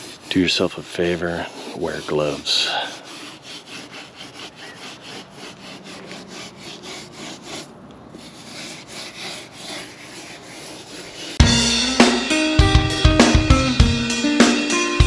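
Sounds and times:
sponge rasping on mortar: 0.0s - 11.4s.

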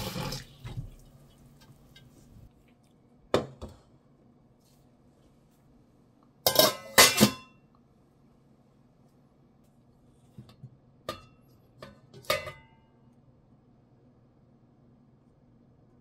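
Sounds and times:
metal lid clinking: 6.5s - 7.5s, 11.1s - 12.6s.

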